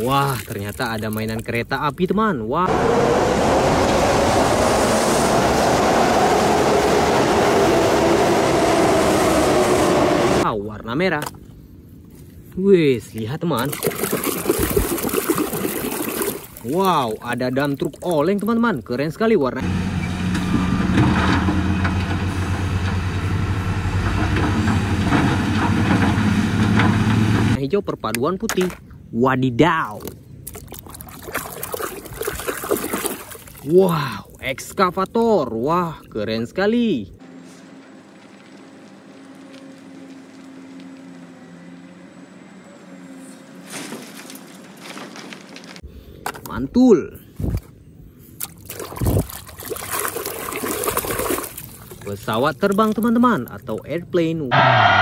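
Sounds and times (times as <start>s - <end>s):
diesel engine running: 2.7s - 10.5s, 19.6s - 27.6s, 54.5s - 55.0s
earth and rock sliding: 43.6s - 45.9s.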